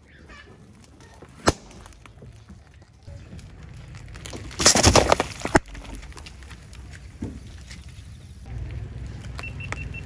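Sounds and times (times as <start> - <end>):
plastic bottle crackling and bursting: 3.1 - 6.8
low rumble of rolling car: 5.6 - 10.0.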